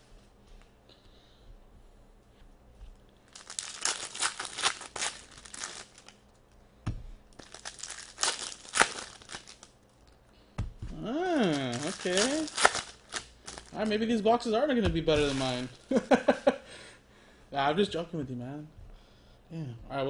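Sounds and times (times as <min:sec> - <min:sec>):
foil wrapper crackling: 0:03.3 - 0:06.3, 0:07.3 - 0:10.2, 0:11.4 - 0:14.0, 0:15.1 - 0:16.0.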